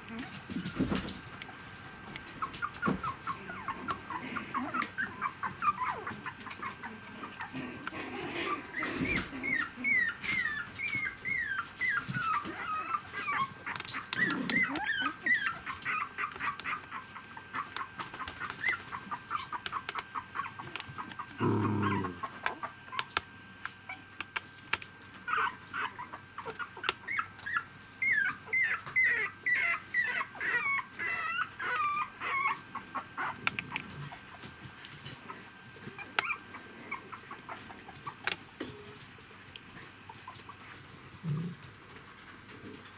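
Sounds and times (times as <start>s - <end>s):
puppy whimpering: 2.4s - 23.0s, 25.2s - 34.4s, 35.3s - 39.0s.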